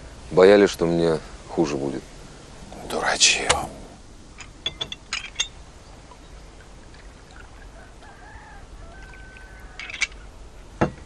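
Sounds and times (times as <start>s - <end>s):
quiet outdoor ambience: 0.0s - 11.0s
rooster crowing faintly: 7.5s - 10.3s.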